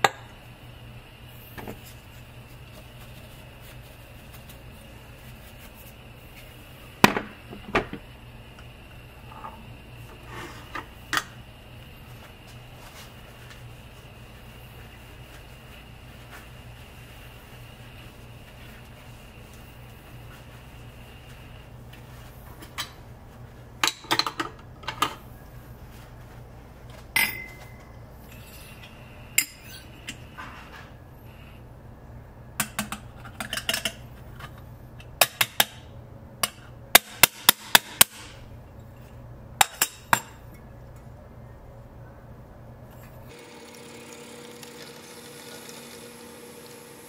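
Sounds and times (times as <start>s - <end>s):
faint low hum: 38.4s - 43.3s.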